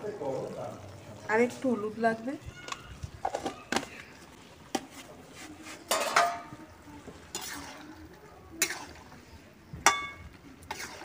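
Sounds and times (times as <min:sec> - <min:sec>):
steel spatula scraping a wok: 0:07.3 - 0:07.9, 0:08.6 - 0:09.2, 0:09.9 - 0:11.0.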